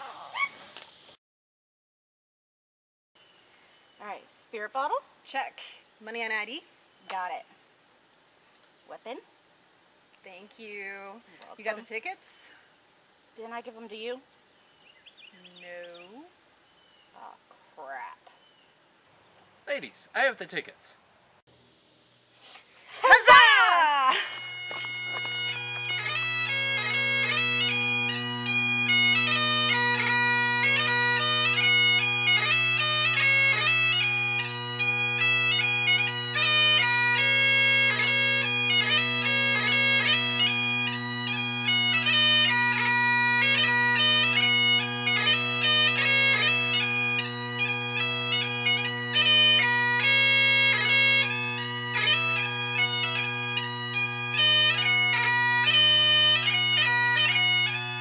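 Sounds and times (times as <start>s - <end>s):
bagpipes playing quick melody: 23.0s - 58.0s.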